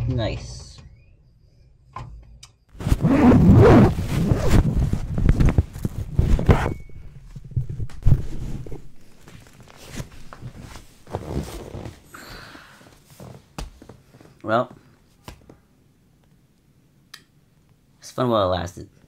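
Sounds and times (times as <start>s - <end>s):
person shifting on couch: 2.8s - 12.2s.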